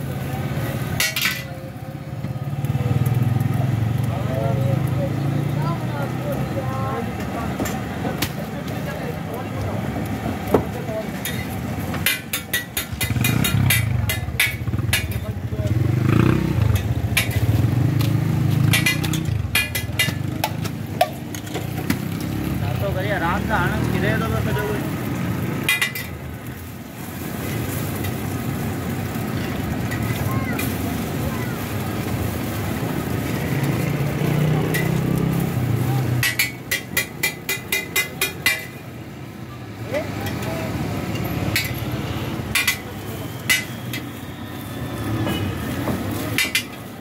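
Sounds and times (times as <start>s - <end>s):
metal spatula scraping griddle: 11.1s - 15.3s, 16.5s - 22.4s, 34.6s - 38.8s.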